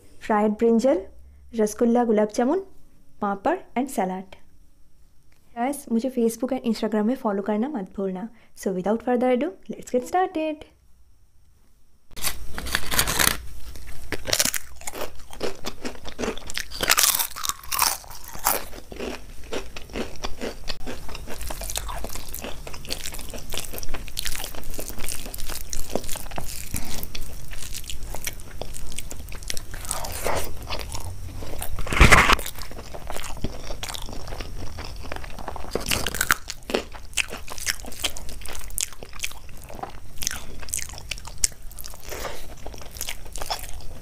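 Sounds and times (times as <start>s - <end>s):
crunching and chewing: 12.2s - 44.0s.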